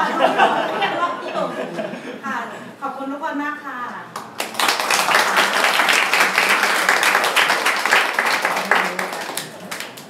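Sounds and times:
people applauding: 4.2 - 10.0.

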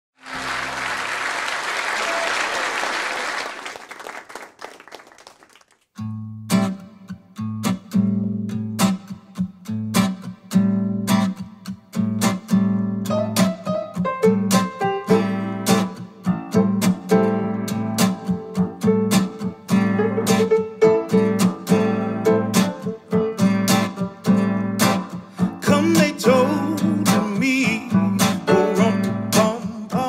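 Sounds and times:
applause: 0.2 - 5.9
acoustic guitar strumming: 6.0 - 30.0
piano notes: 13.0 - 25.2, 25.8 - 29.5.

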